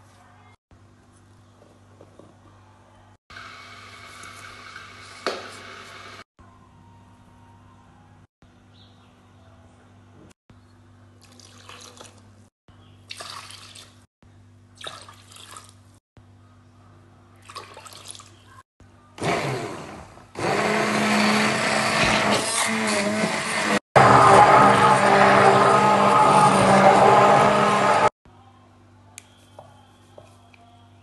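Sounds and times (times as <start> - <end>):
stick blender running: 19.2 - 28.1.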